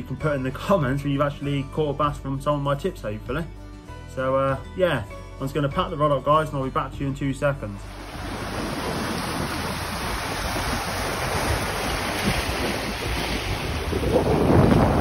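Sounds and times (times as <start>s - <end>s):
waves breaking over rocks: 7.8s - 15.0s
wind buffeting microphone: 7.9s - 15.0s.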